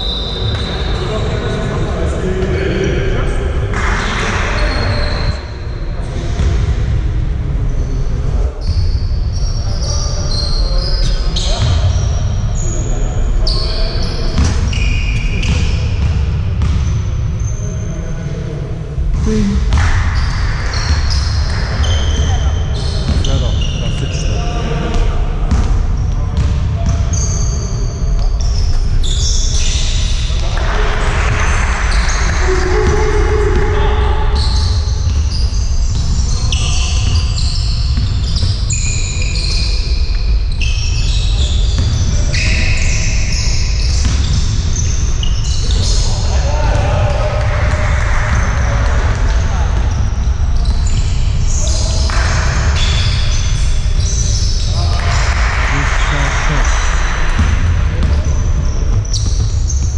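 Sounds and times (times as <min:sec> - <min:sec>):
sneakers squeaking on court: 0:08.6 - 0:17.7, 0:19.2 - 0:24.2, 0:34.4 - 0:46.2, 0:49.2 - 0:59.9
basketball bouncing: 0:15.4 - 0:17.0, 0:24.9 - 0:27.2, 0:43.8 - 0:44.7.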